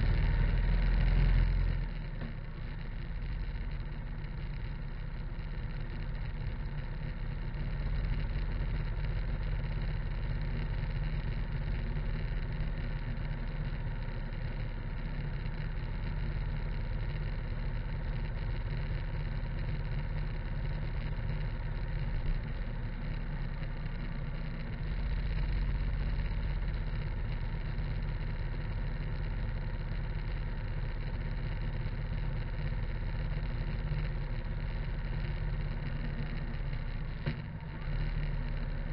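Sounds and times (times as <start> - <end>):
motorcycle engine drone: 0.0 - 38.9.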